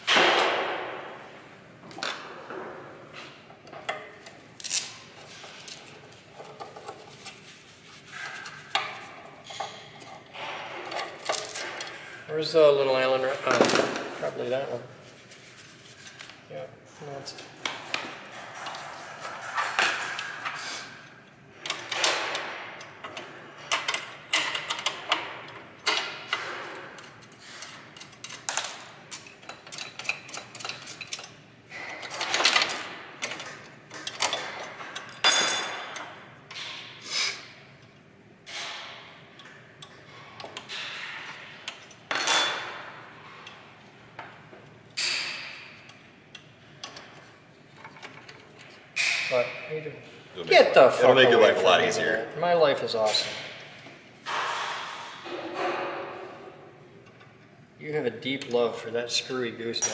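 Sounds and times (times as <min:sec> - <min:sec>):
tools and metal parts clattering: 0:08.1 - 0:12.0, 0:21.6 - 0:36.9, 0:39.7 - 0:44.3, 0:46.8 - 0:49.6, 0:59.7 - 0:59.9.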